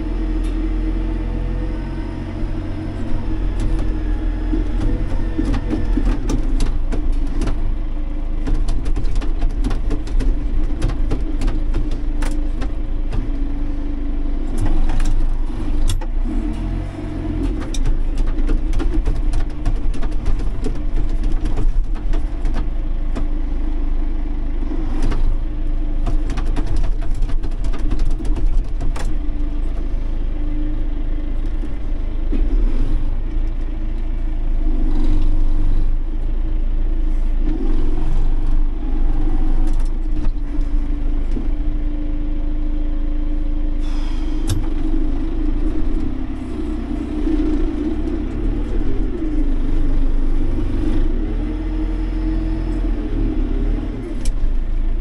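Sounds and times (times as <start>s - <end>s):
tractor engine running: 0.0s - 55.0s
knocks and clatter: 2.9s - 13.8s, 17.3s - 23.5s, 24.8s - 30.2s.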